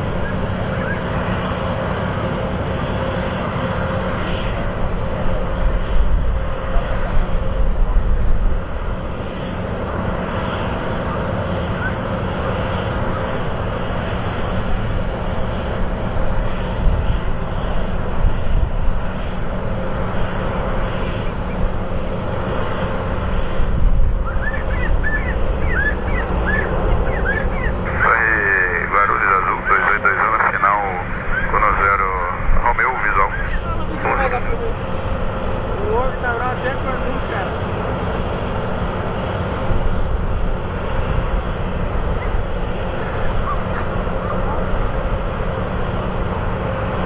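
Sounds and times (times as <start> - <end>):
jet engines running: 0.0 - 47.0
bird chirps: 24.3 - 27.8.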